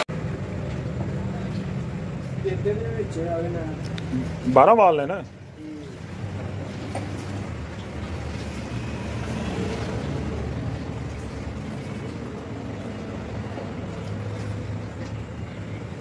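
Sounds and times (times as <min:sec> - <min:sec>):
motor rumbling: 0:05.3 - 0:16.0.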